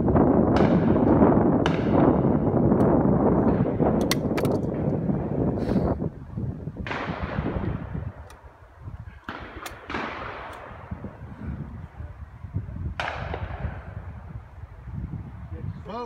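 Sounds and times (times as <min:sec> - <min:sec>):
wind rumble on microphone: 0:00.0 - 0:16.0
shotgun shots echoing: 0:06.8 - 0:08.2, 0:09.2 - 0:11.1, 0:13.0 - 0:13.9.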